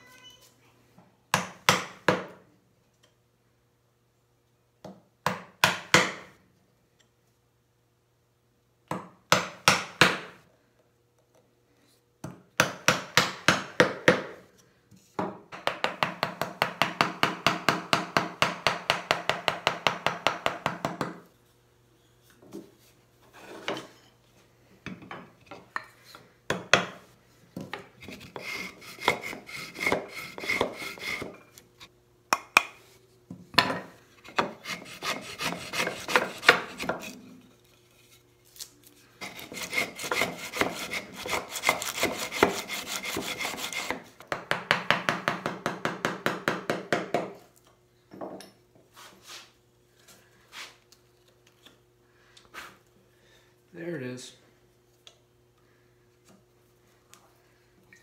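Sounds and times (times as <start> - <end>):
hand router plane scraping: 28.0 - 31.3, 34.2 - 37.2, 39.2 - 44.1
chisel scraping wood: 28.0 - 31.9, 34.2 - 38.2, 39.2 - 44.1.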